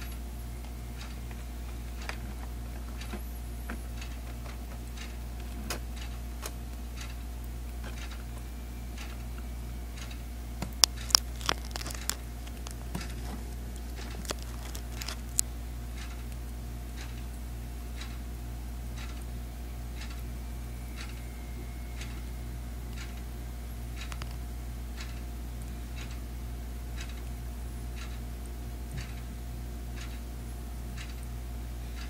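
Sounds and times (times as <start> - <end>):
steady low hum: 0.0 - 32.0
crab claws clicking and scraping: 10.0 - 16.4, 24.0 - 24.4.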